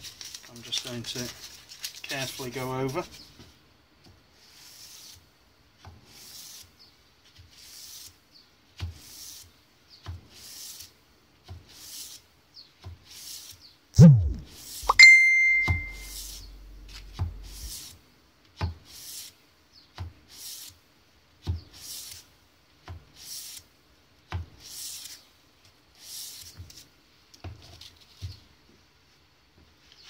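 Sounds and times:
sandpaper hissing on steel: 17.4s - 17.9s, 18.9s - 19.3s, 20.3s - 20.7s, 23.2s - 23.6s.

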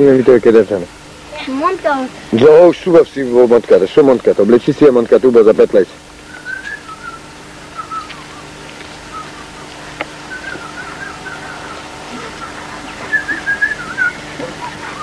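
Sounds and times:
steady low hum: 0.0s - 15.0s
person whistling a warbling tune: 6.3s - 7.2s, 7.8s - 8.5s, 10.3s - 15.0s.

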